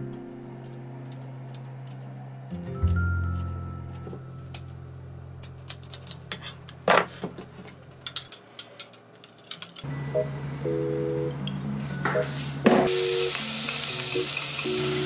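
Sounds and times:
soft background music: 0.0 - 6.2, 9.9 - 15.0
utensils and dishes clinking: 5.4 - 9.9, 12.8 - 15.0.

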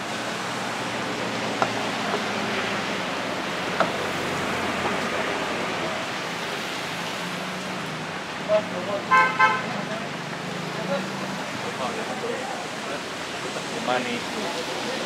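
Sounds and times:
busy street food stall noise: 0.0 - 15.0
cleaver striking chopping board: 3.8 - 4.0.

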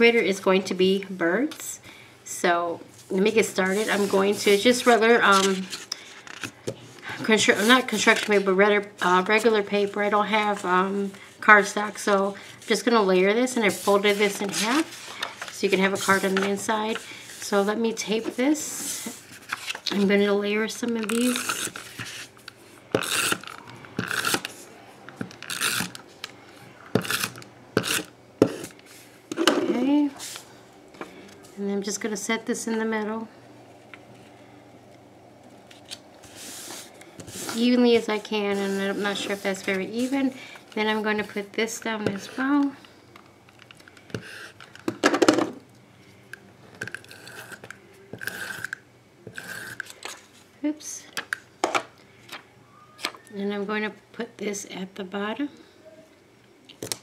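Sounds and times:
tape runner drawn across paper: 3.6 - 5.7.

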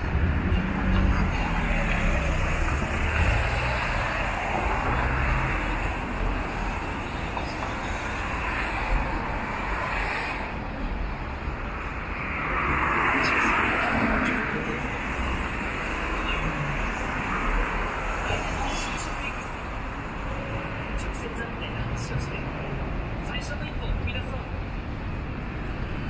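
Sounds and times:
street traffic: 0.0 - 26.0.

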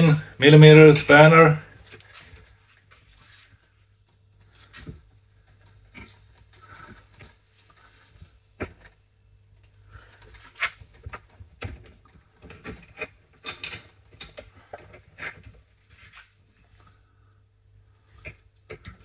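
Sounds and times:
hand tools clinking on metal: 13.4 - 14.5.

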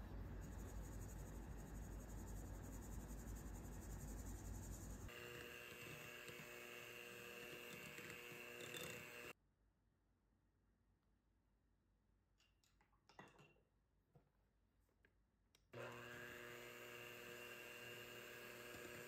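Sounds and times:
sieve sifting powder: 0.0 - 9.3
electric hand mixer whirring: 5.1 - 9.4, 15.8 - 19.0.

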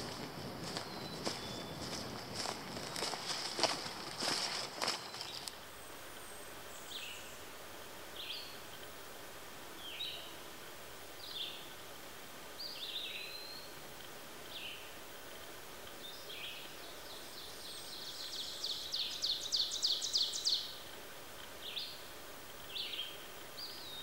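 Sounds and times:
bird song of rapid high notes: 0.0 - 2.1
songbirds chirping: 0.0 - 24.0.

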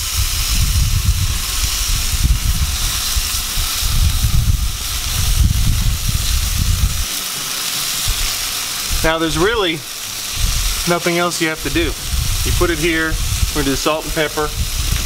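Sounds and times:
low uneven rumble: 0.0 - 7.1, 7.8 - 10.9, 11.6 - 15.0
fish sizzling on a grill: 0.0 - 15.0.

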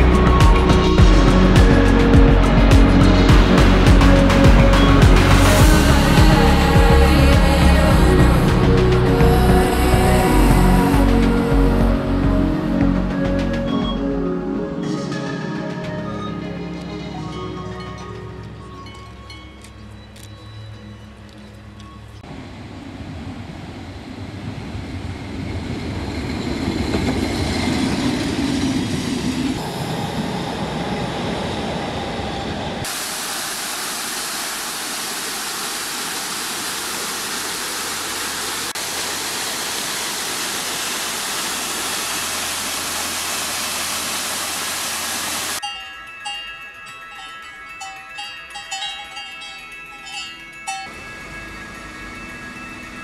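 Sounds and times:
rumbling rush of noise: 22.2 - 45.6
waterfall splashing onto rocks: 32.9 - 45.6.

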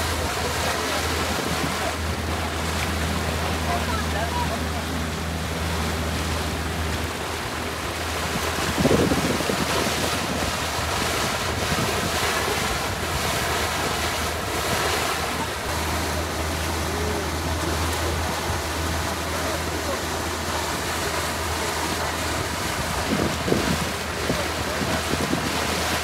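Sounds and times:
low engine hum: 0.0 - 26.0
water rushing along boat hull: 0.0 - 26.0
wind on microphone: 7.9 - 15.9, 21.4 - 26.0.

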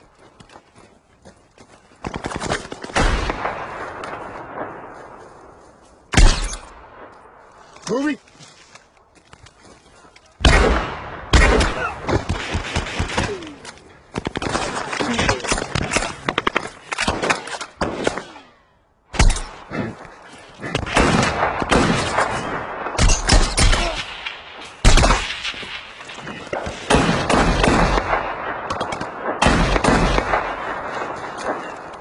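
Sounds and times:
rapid rifle fire: 26.5 - 30.9.

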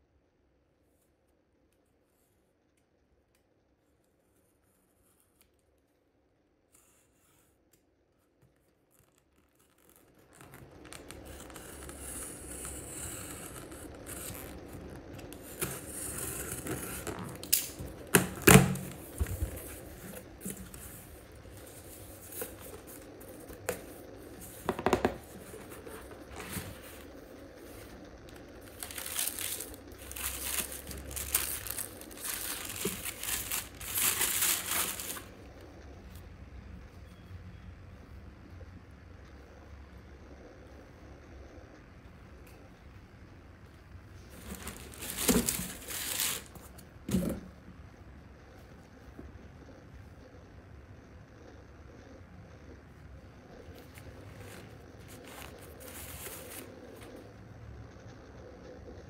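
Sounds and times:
tissue paper crinkling: 25.3 - 35.4, 44.3 - 46.7, 53.9 - 56.7.

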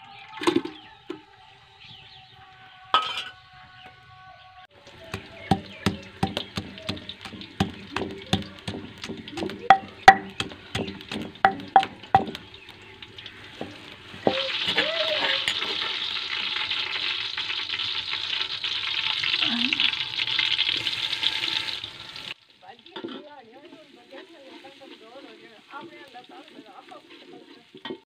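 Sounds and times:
frying oil sizzling: 4.7 - 28.0
pestle pounding in stone mortar: 5.0 - 12.5.

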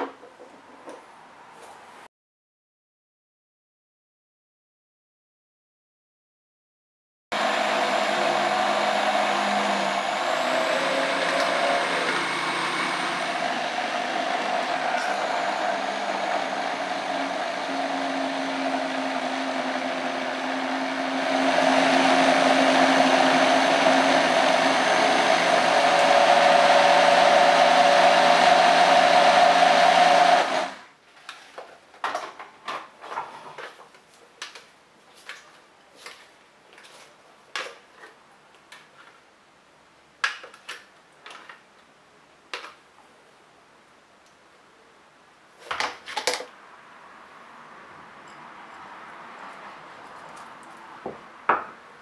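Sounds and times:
blender churning: 7.4 - 30.8.

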